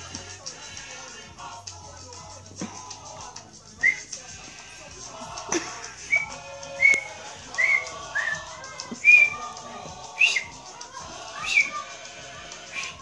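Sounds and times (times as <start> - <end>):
faint music: 0.0 - 13.0
high whistled chirps: 3.8 - 4.1, 6.0 - 10.6, 11.4 - 11.8, 12.7 - 13.0.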